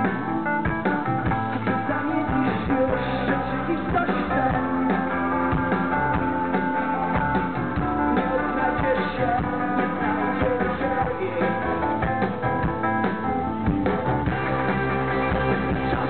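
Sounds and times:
drum kit beat: 0.0s - 16.0s
electric guitar strumming: 12.2s - 16.0s.

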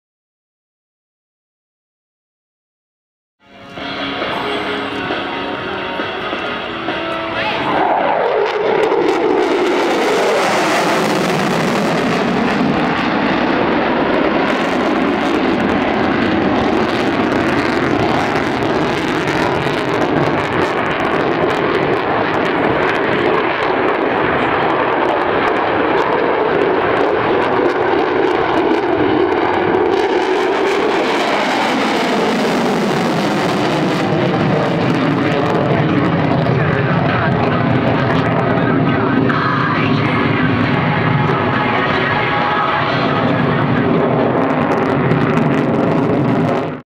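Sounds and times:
jet afterburners roaring: 3.5s - 46.8s
fighter jet flying past: 3.7s - 46.8s.

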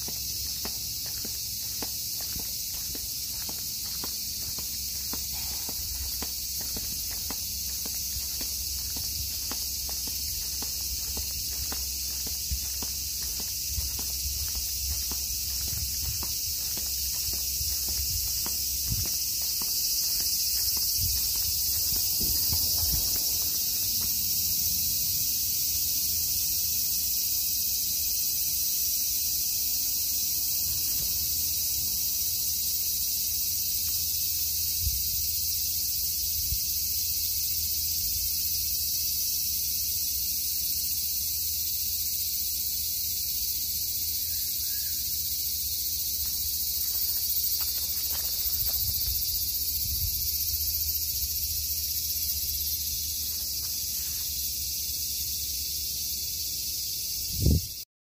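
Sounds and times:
insects chirping: 0.0s - 57.9s.

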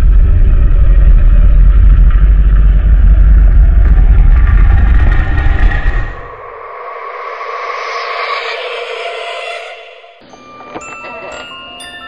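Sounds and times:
loud low rumble: 0.0s - 10.2s.

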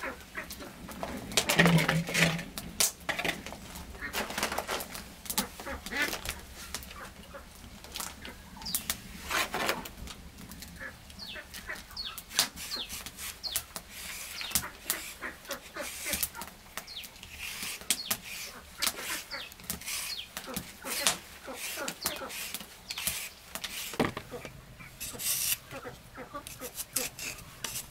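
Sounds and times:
chickens clucking and peeping: 0.0s - 2.4s, 3.3s - 4.8s, 5.4s - 8.8s, 10.6s - 22.4s, 24.0s - 27.9s
sharp clicks and scrapes: 8.7s - 10.7s, 12.3s - 27.9s.

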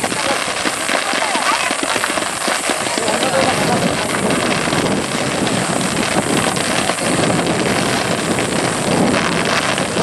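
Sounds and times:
fireworks bursting: 0.0s - 10.0s
fireworks crackling: 0.0s - 10.0s.

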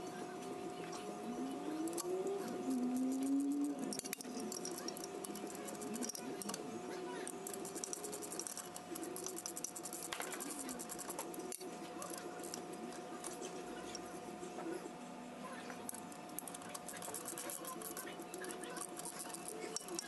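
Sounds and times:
metal gears clicking and rattling: 1.8s - 6.6s, 7.2s - 13.5s, 15.8s - 20.0s.

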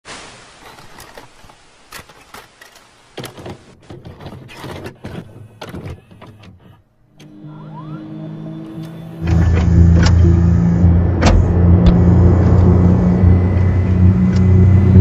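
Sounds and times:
short rising glide: 7.3s - 15.0s.

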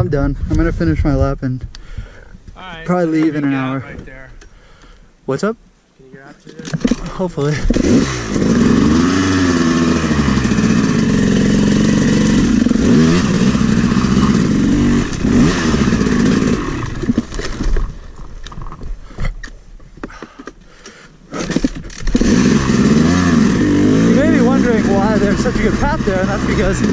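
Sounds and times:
two-stroke engine revving: 6.9s - 17.7s, 21.3s - 26.9s.

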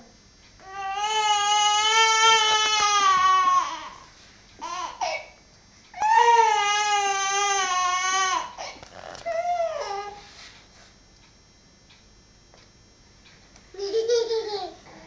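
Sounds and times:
baby crying: 0.7s - 4.0s, 6.0s - 10.2s.

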